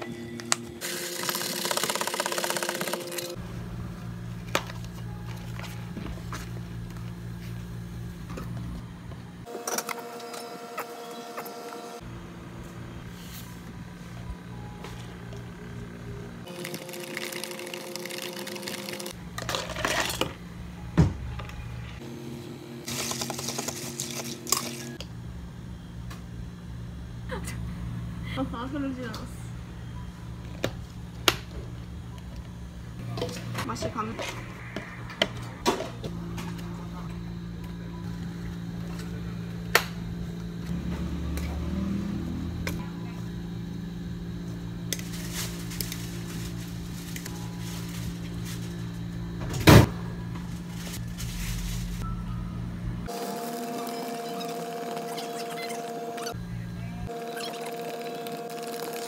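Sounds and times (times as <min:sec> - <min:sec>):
cafe equipment hum: 0:00.0 - 0:59.0
ice cubes clinking in plastic cups: 0:00.8 - 0:03.4.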